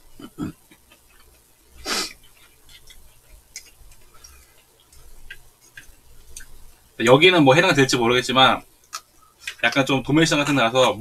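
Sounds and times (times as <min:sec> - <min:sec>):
eating clicks and ticks: 0:00.7 - 0:01.5, 0:02.1 - 0:06.6, 0:08.8 - 0:11.0.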